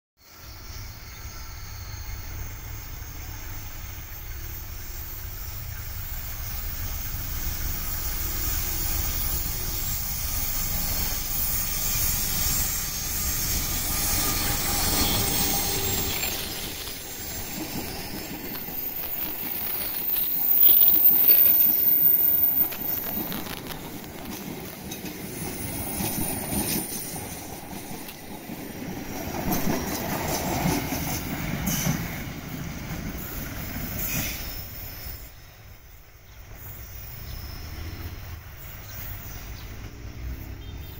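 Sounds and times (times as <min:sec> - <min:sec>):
wheel flange squeal: 0:00.4 - 0:05.8, 0:06.4 - 0:28.3, 0:33.1 - 0:35.9
train wheels rolling: 0:00.4 - 0:40.9
locomotive engine rumble: 0:01.6 - 0:40.9.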